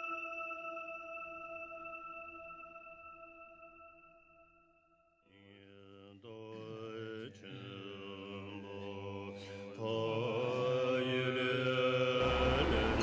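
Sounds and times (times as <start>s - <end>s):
mantra chanting in held notes: 5.3s - 13.0s
low drone: 12.2s - 13.0s.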